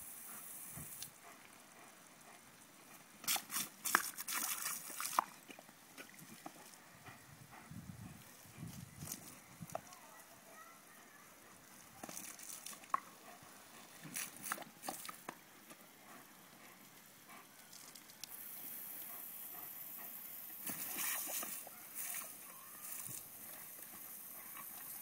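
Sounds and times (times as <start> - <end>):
steady hiss of spray: 0.0 - 5.0, 8.3 - 25.0
sprinkler water spattering: 0.0 - 6.8, 9.0 - 25.0
dog biting at water splashes: 3.2 - 5.4, 14.0 - 15.3, 20.6 - 25.0.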